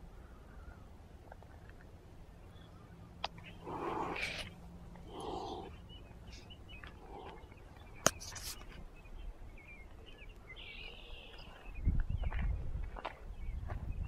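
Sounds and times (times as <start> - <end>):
small birds chirping: 0.0 - 14.0
cat calling: 3.5 - 5.8.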